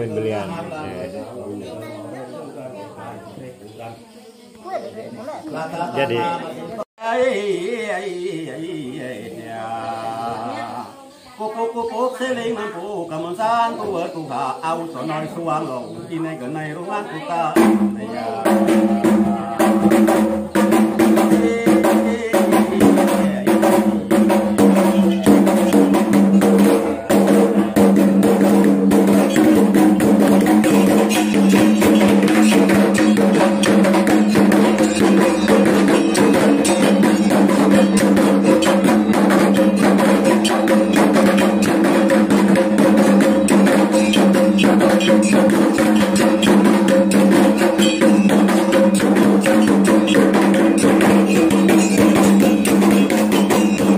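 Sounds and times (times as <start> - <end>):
fast hand drumming: 17.6 - 53.9.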